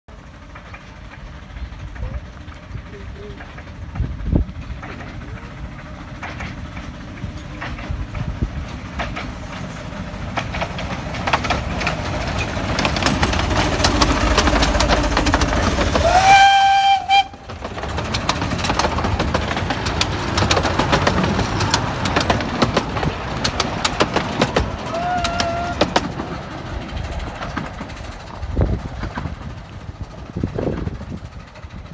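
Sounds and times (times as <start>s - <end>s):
steam locomotive passing: 0.1s - 31.9s
wheels clicking and rattling on track: 0.1s - 31.9s
steam whistle: 15.9s - 17.4s.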